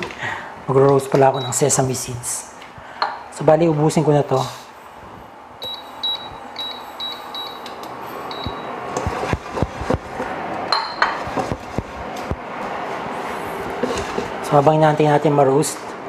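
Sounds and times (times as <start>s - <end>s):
short high beeps: 5.6s - 8.7s
wok sliding across glass: 12.6s - 14.5s.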